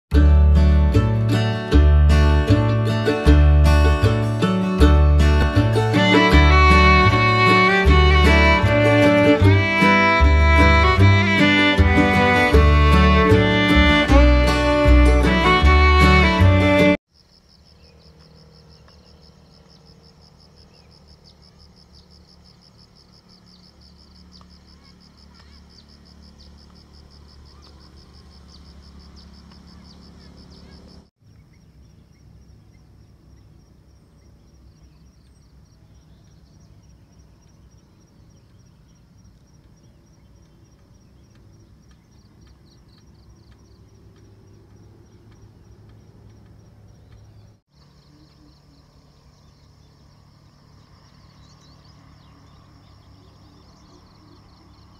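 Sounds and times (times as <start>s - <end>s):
insects chirring: 17.1s - 54.9s.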